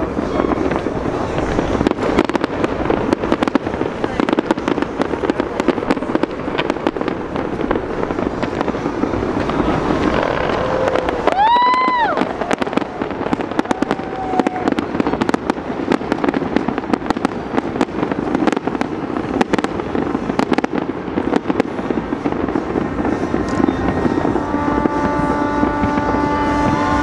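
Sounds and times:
fireworks bangs and crackles: 0:00.0 - 0:27.0
steady horn: 0:22.8 - 0:27.0.

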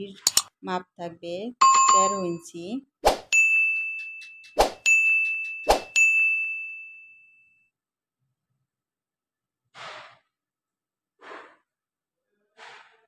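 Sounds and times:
metallic ding: 0:03.3 - 0:07.1
soft exhaled breaths: 0:11.2 - 0:11.7.

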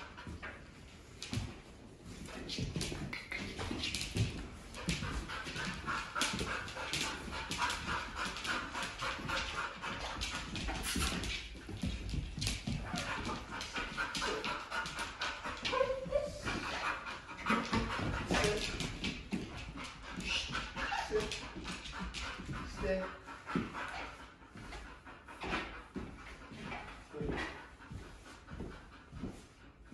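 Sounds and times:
dog panting rapidly: 0:00.0 - 0:29.9
claws clicking on laminate floor: 0:02.3 - 0:22.7.

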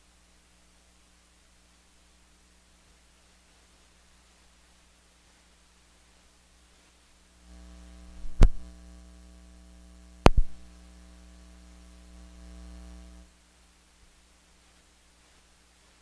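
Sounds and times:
electrical mains hum: 0:00.0 - 0:16.0
loud pops: 0:08.2 - 0:08.6, 0:10.2 - 0:10.7.

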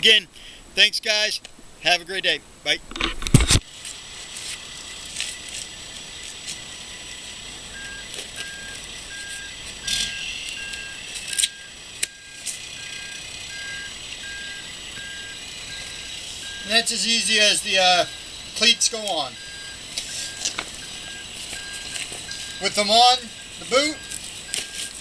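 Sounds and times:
faint repeating beep: 0:07.7 - 0:25.0.

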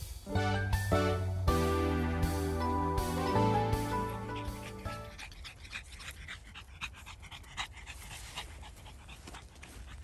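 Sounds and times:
dog panting: 0:03.7 - 0:10.0.

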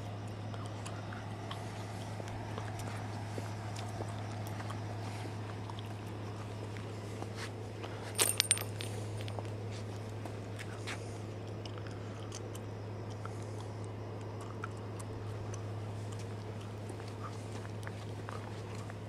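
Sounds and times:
steady low hum: 0:00.0 - 0:19.0
metallic jingle: 0:08.1 - 0:09.5.

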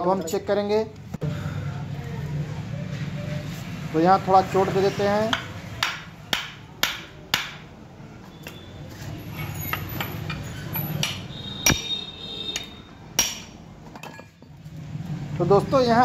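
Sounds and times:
hammer striking metal: 0:05.3 - 0:07.7, 0:09.7 - 0:13.6.

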